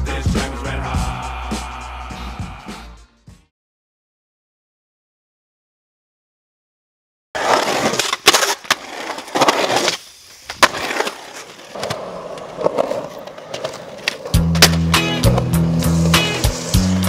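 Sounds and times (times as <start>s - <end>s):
music with steady beat: 0.0s - 3.5s, 14.4s - 17.0s
skateboard clacks: 7.4s - 17.0s
skateboard wheels rolling on concrete: 7.4s - 17.0s.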